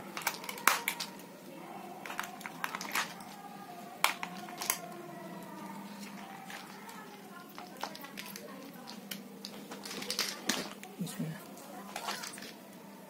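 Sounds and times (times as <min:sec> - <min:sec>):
batteries clicking into plastic toy: 0:00.1 - 0:01.2, 0:02.0 - 0:03.4, 0:04.0 - 0:05.0, 0:06.0 - 0:10.9.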